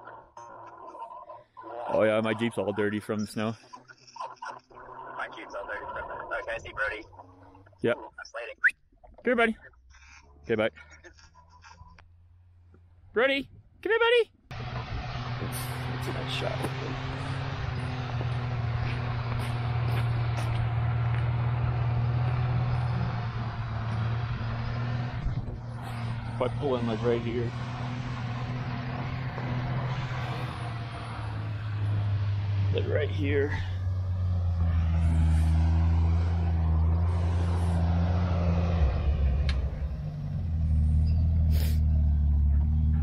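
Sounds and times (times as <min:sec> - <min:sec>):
vehicle engine running: 0:00.0 - 0:08.5, 0:14.5 - 0:43.0
short hiss: 0:41.5 - 0:41.9.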